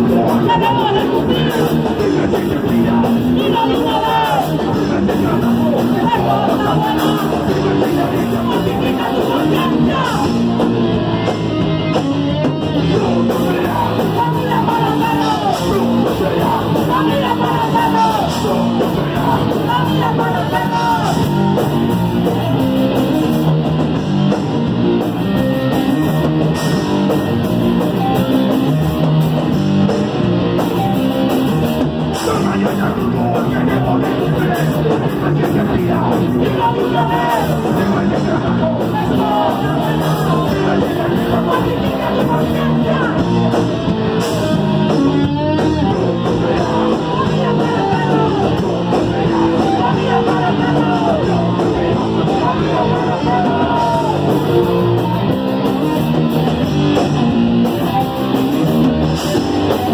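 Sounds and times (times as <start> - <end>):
shouted vocals: 0.0 - 10.5, 12.8 - 22.8, 32.2 - 43.7, 45.1 - 56.1
punk band playing live: 0.0 - 59.9.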